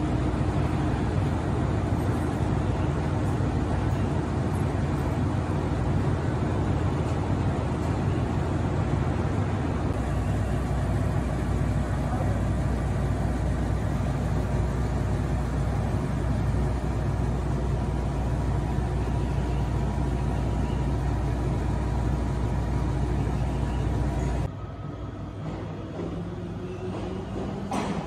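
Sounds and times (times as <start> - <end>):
diesel railcar engine idling: 0.0 - 28.0.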